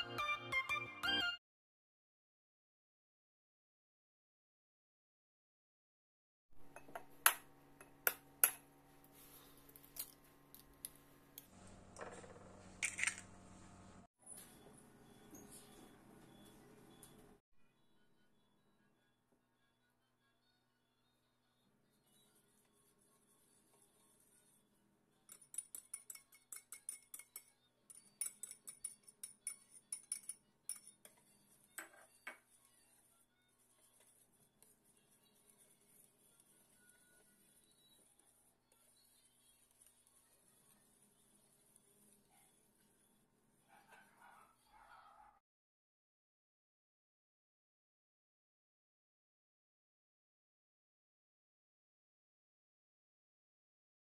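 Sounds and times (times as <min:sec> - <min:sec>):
wire whisk clinking against pot: 0:25.3 - 0:32.3
whisk scraping: 0:28.0 - 0:43.0.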